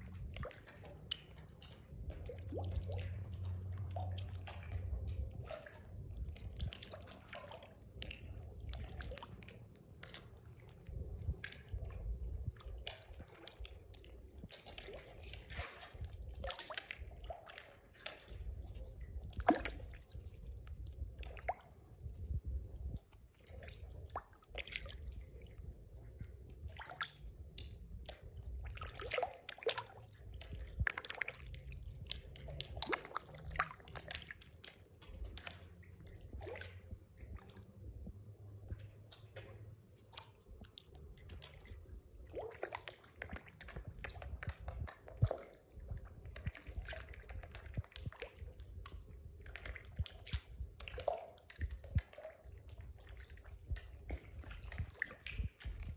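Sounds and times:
low steady rumble: 0.0s - 7.3s, 34.4s - 42.3s
fish plopping and slurping: 0.0s - 55.9s.

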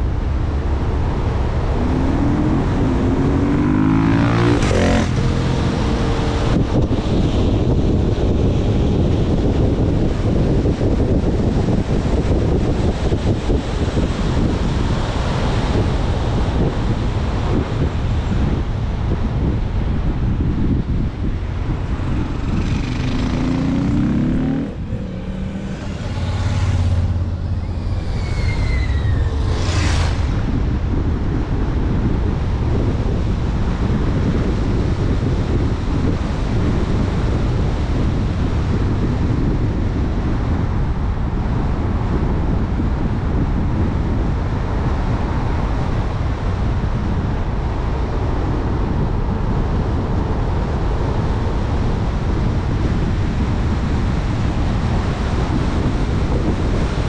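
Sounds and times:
wind and road noise: 0.0s - 57.0s
short whoosh: 21.9s - 31.3s.

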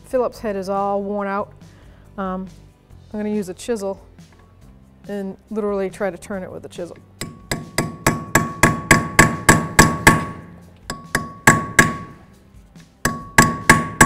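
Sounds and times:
hammer striking metal chisel: 7.2s - 14.0s.

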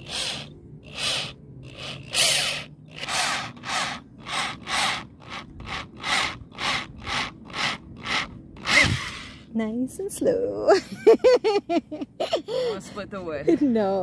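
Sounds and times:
rasping strokes on wood: 0.0s - 9.4s.

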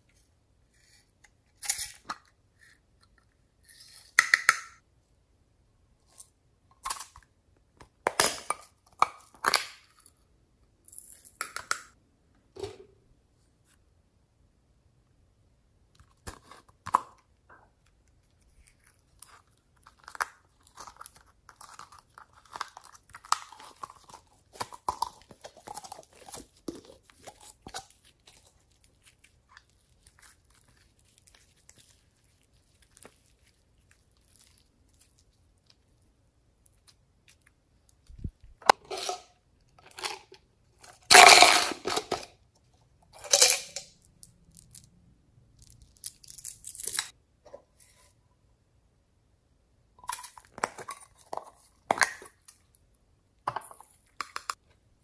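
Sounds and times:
slime squishing: 18.1s - 38.6s.

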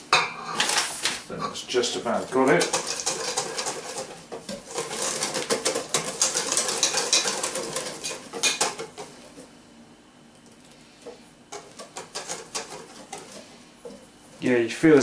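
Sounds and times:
whisk beating in metal bowl: 1.7s - 9.3s, 11.5s - 14.6s.

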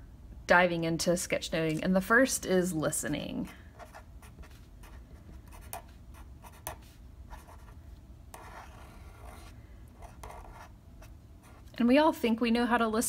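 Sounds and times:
marker pen on paper: 3.0s - 11.8s.

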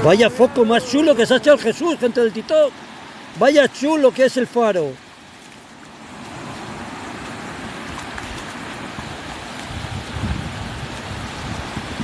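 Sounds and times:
surf washing up sand: 0.0s - 12.0s
wind rumble on microphone: 5.9s - 12.0s.

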